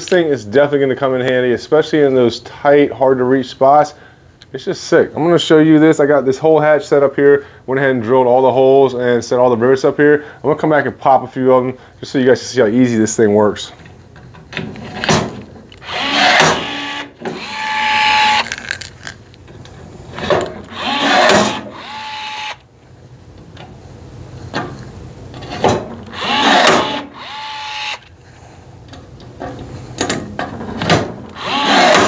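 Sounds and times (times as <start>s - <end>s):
motor whir and whine: 15.8s - 18.4s, 20.6s - 22.6s, 26.1s - 28.0s, 31.3s - 32.0s.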